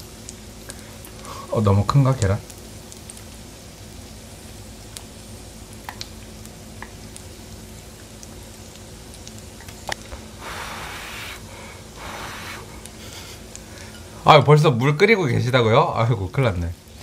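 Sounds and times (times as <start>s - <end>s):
meat sizzling on grill: 2.3s - 17.0s
breathy blowing: 10.2s - 14.2s.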